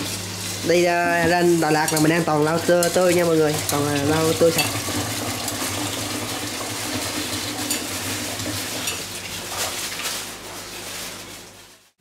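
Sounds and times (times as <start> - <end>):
food sizzling in pan: 0.0 - 12.0
utensils clinking on pots: 0.8 - 5.9, 6.9 - 9.8.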